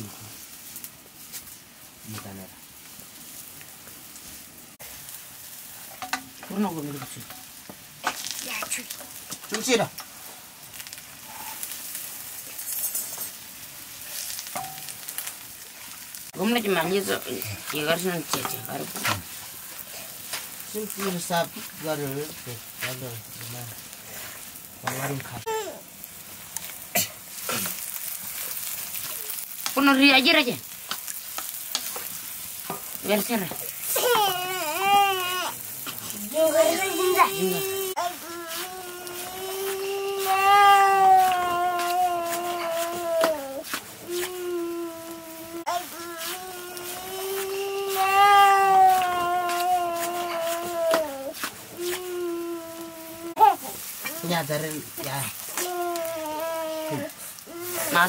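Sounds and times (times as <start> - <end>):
leaves sizzling in a wok: 0.0 - 58.0
wooden stick scraping a pan: 12.5 - 13.4, 14.1 - 15.3, 16.9 - 25.4, 35.8 - 44.5, 45.8 - 52.1
person calling out: 36.2 - 54.4, 55.6 - 58.0.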